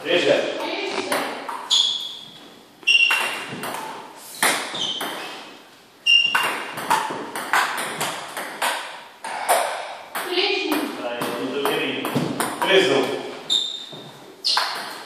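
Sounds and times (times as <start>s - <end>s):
table tennis ball on paddles: 0.6s - 2.1s, 2.8s - 13.2s, 14.4s - 15.0s
ball bouncing on table: 1.0s - 1.7s, 2.8s - 5.3s, 6.2s - 13.2s, 14.5s - 15.0s.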